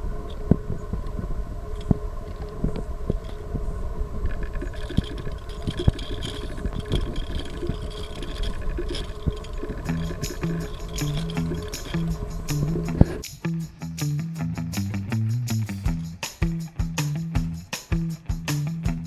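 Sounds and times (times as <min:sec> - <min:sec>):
car engine rumble: 0:02.5 - 0:13.3.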